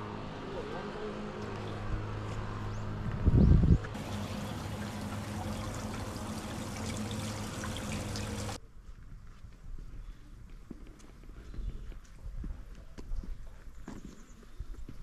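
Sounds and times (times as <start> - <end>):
low steady hum: 0.6 - 8.6
water pouring: 4.0 - 8.6.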